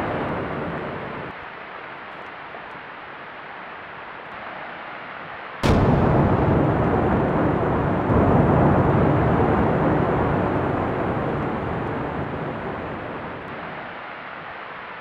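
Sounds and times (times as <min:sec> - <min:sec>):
chimney collapsing rumble: 0:05.6 - 0:13.5.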